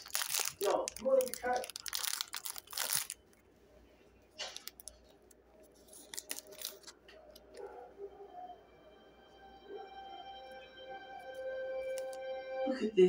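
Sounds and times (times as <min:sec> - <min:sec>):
foil wrapper crinkling and tearing: 0:00.0 - 0:03.4, 0:04.4 - 0:07.4, 0:11.9 - 0:12.2
cards rustling and clicking: 0:04.4 - 0:07.6.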